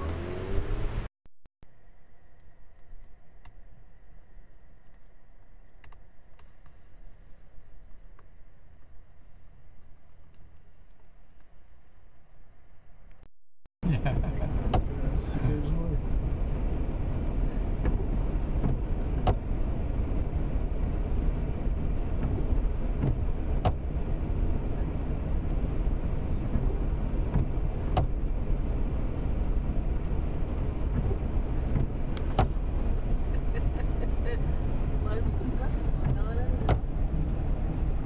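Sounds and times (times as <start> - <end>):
car engine idling: 13.8 - 38.0
rain: 14.0 - 38.0
windshield wiper ticking: 14.5 - 15.7, 17.7 - 20.2, 21.4 - 24.4, 25.4 - 37.9.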